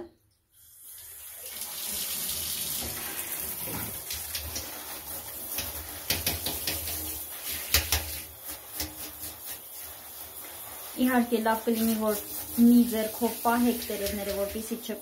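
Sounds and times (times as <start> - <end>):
shower water hissing: 0.5 - 15.0
water splashing on leaves: 4.0 - 15.0.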